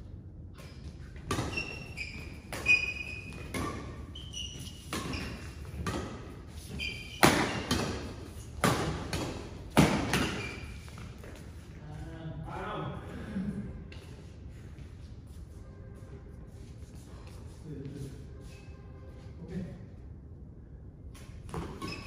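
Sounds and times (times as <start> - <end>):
shoe squeaks: 0.6 - 7.8, 10.0 - 11.0, 21.6 - 22.0
rackets hitting shuttlecock: 0.6 - 10.8.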